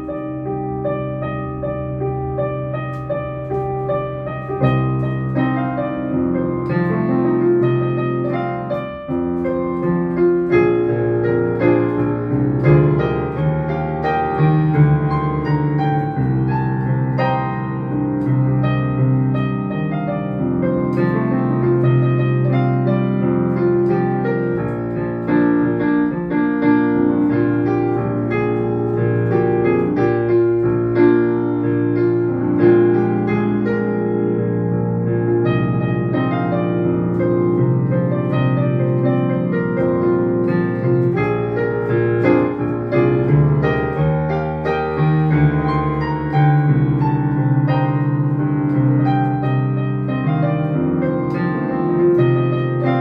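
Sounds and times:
digital piano solo: 0:00.0 - 0:53.0.

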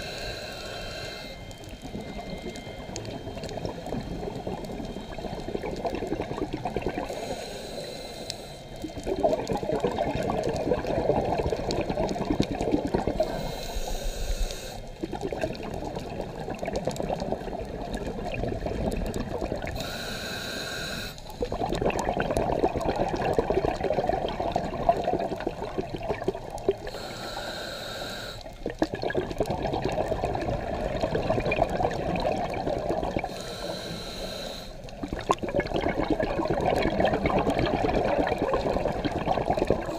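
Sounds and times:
regulator inhale hisses: 0:00.0 - 0:01.5, 0:07.1 - 0:08.8, 0:13.2 - 0:15.0, 0:19.7 - 0:21.6, 0:26.8 - 0:28.6, 0:33.2 - 0:35.0
bubbling exhaust underwater: 0:00.0 - 0:39.9.

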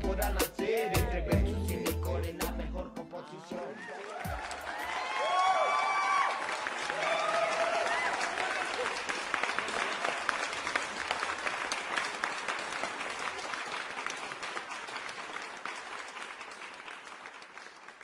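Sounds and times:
crowd applause: 0:03.3 - 0:18.0.

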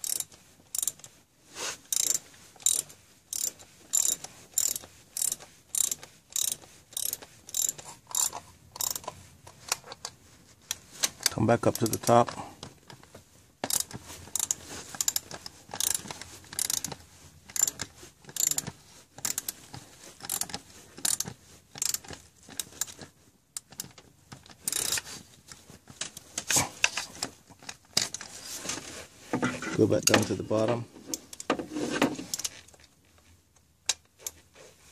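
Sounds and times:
hand ratchet clicking: 0:00.0 - 0:01.1, 0:01.9 - 0:09.2, 0:13.6 - 0:19.6, 0:20.2 - 0:23.0, 0:23.6 - 0:25.0.

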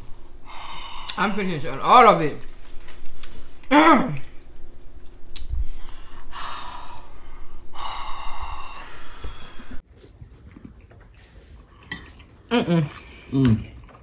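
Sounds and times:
person panting heavily: 0:00.4 - 0:01.4, 0:05.6 - 0:09.8.

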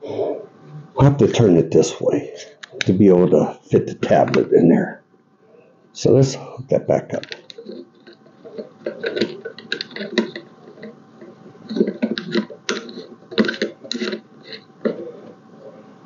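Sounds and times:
parts clicking and tapping: 0:07.2 - 0:15.4.

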